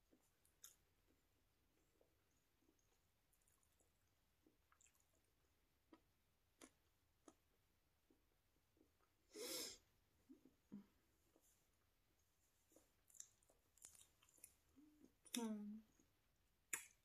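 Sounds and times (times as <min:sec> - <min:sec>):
person chewing with mouth closed: 0:01.8 - 0:07.4, 0:12.7 - 0:16.0.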